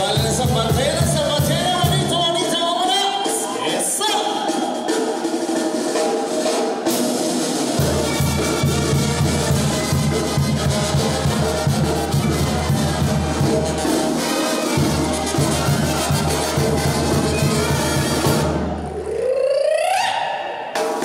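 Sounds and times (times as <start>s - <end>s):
brass band playing: 0.0s - 19.0s
tuba bass line: 7.8s - 19.4s.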